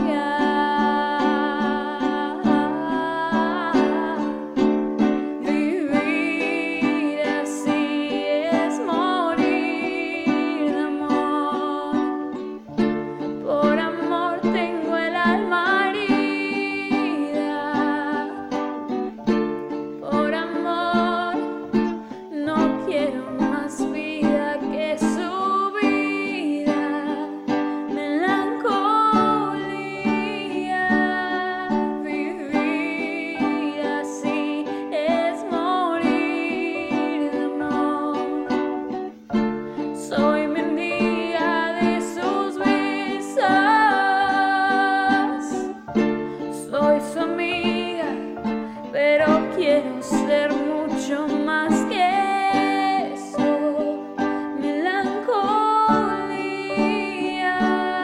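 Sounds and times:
woman singing a ballad: 0.0 - 4.6, 5.4 - 12.3, 13.4 - 18.7, 20.0 - 38.7, 39.9 - 58.0.

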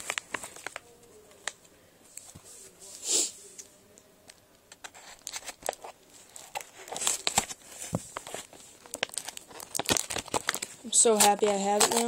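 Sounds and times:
paper envelope crinkling: 0.0 - 1.6, 4.8 - 12.0.

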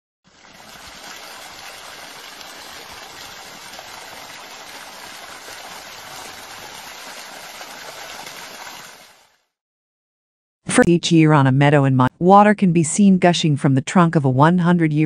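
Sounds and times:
water splashing into puddle: 0.3 - 9.4.

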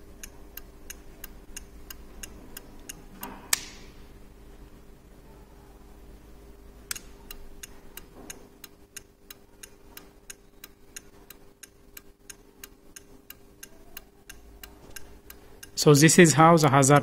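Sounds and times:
flasher relay clicking: 0.0 - 4.0, 6.8 - 17.0
faint steady hum: 0.0 - 17.0
hazard switch click: 0.2 - 3.9, 6.9 - 15.8.

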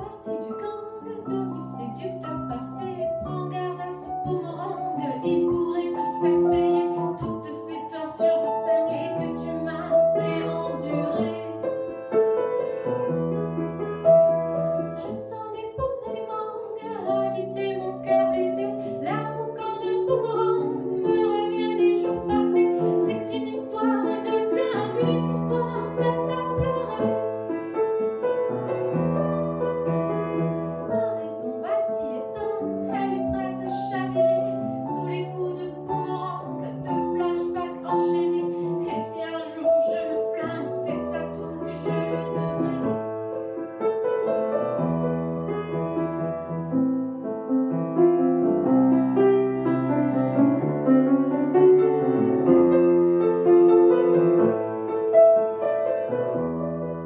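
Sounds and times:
woman singing: 0.0 - 11.8, 15.0 - 27.4, 30.9 - 43.0
grand piano accompaniment: 0.0 - 57.0.

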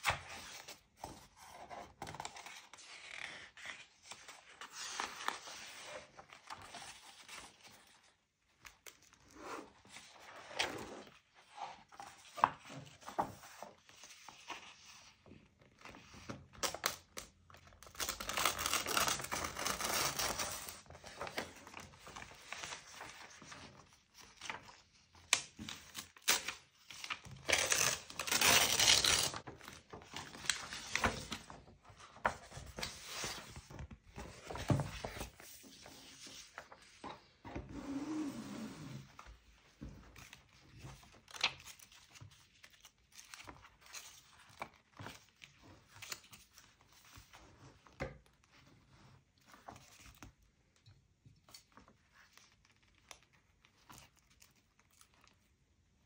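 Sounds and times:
paper rustling: 17.9 - 37.6.

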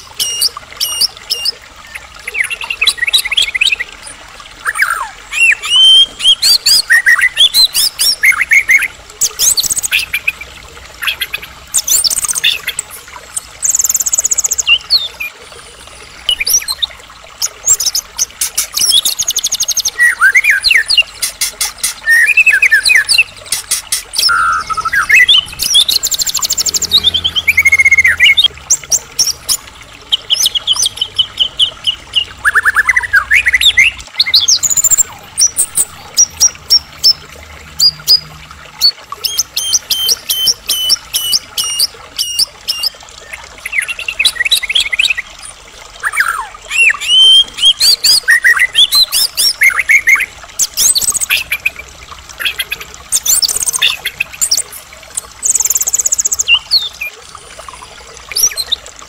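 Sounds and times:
bird singing varied whistles and trills: 18.8 - 21.0, 21.8 - 23.3, 24.1 - 29.5.

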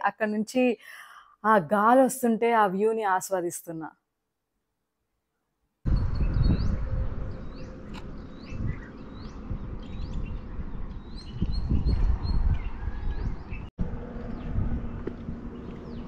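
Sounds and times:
wind buffeting microphone: 5.8 - 16.0
bird chirping: 5.9 - 13.7.

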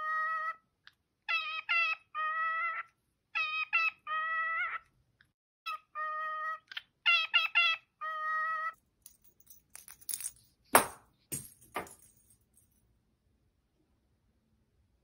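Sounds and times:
cockatiel harsh cries: 1.3 - 4.8, 5.7 - 8.8.

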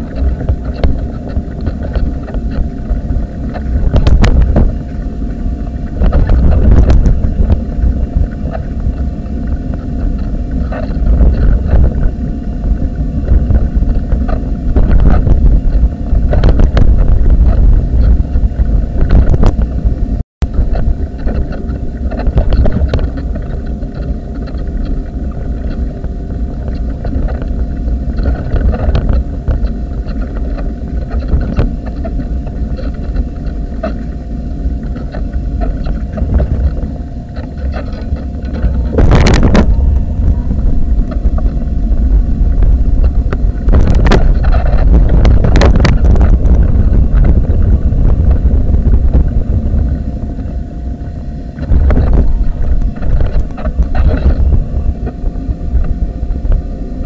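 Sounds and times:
wind buffeting microphone: 0.0 - 57.0
wheelchair rolling rumble and knocks: 5.8 - 50.6.

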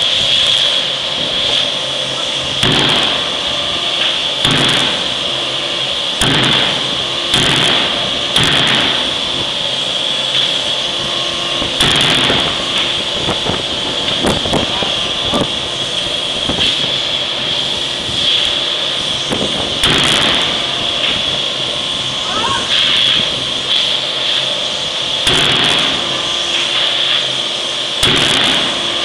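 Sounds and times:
forging hammer heavy blows: 2.6 - 5.3, 6.2 - 9.6, 11.6 - 13.5, 19.8 - 21.4, 25.2 - 27.2, 28.0 - 29.0.

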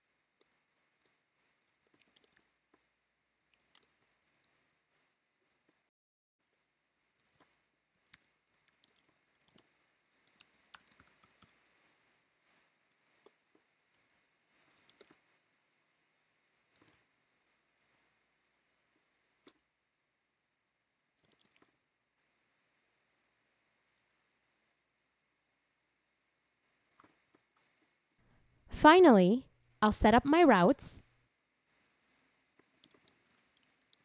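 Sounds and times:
computer keyboard typing: 0.0 - 2.4, 3.3 - 4.6, 7.1 - 11.6, 13.9 - 15.2, 21.2 - 21.7, 32.0 - 34.0.

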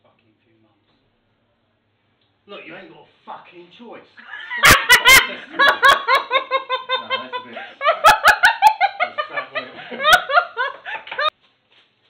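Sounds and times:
men laughing: 4.2 - 11.3.

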